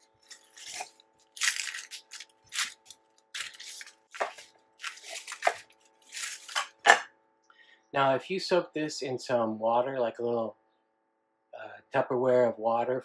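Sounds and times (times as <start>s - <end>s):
onion skin crackling and rustling: 0.0s - 7.0s.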